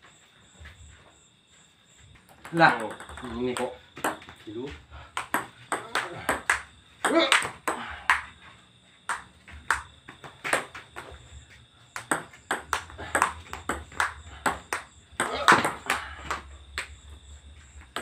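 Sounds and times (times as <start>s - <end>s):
table tennis ball clicking: 2.4s - 4.2s.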